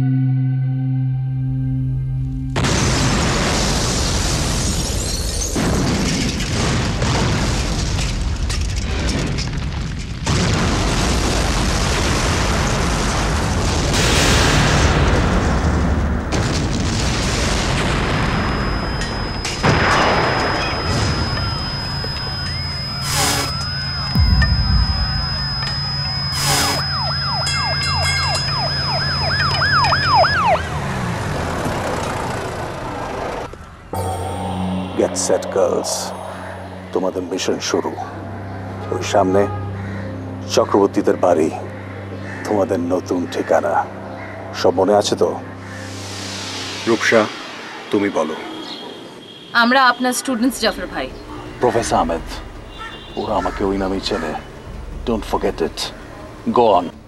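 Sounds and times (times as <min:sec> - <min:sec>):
explosions: 0:02.6 - 0:26.9
fire blazing: 0:02.6 - 0:33.4
emergency siren wailing: 0:17.3 - 0:40.4, 0:47.1 - 0:57.0
thin high steady tone: 0:18.5 - 0:28.8, 0:33.9 - 0:38.4
steady low drone: 0:18.7 - 0:28.7, 0:32.0 - 0:40.8, 0:53.4 - 0:57.0
sudden whoosh: 0:33.9 - 0:38.6.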